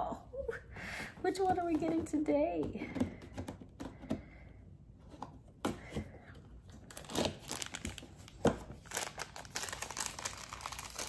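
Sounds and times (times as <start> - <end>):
plastic wrapper crinkling: 6.8 - 11.0.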